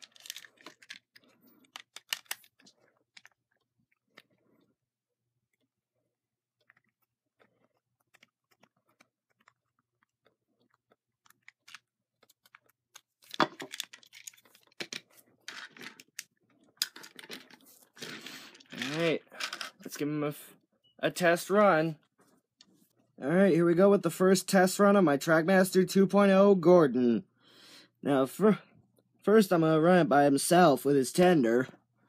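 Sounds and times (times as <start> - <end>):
plastic clicking and rattling: 0.0 - 3.4, 11.2 - 19.8
toy set down on wooden table: 13.3 - 14.0.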